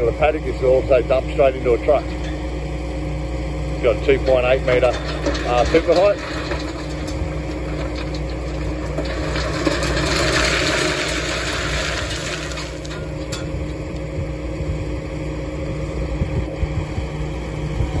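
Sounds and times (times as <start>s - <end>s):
engine running: 0.0s - 18.0s
dirt and stones pouring: 4.6s - 13.8s
stones rattling: 4.7s - 13.8s.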